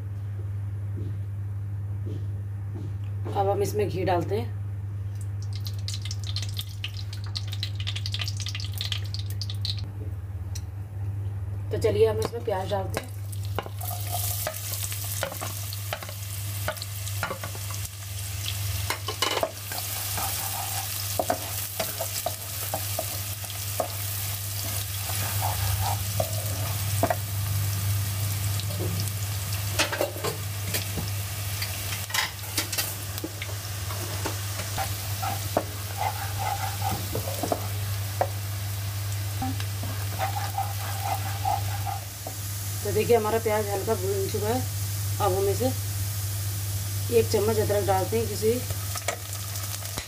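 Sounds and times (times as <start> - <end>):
steady low hum: 0.0 - 49.7
onions sizzling in a pan: 12.2 - 50.0
spatula scraping a pan: 19.3 - 23.2, 24.6 - 26.8, 34.8 - 37.8, 39.8 - 42.1.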